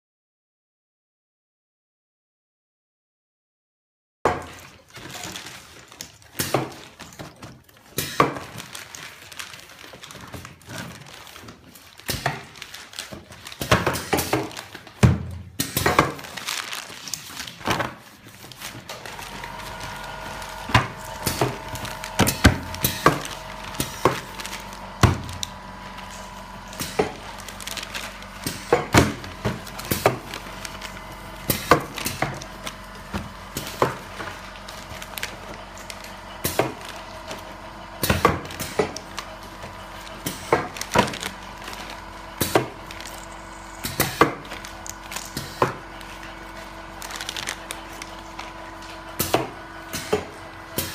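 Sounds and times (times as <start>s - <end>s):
machine hum: 18.4s - 50.9s.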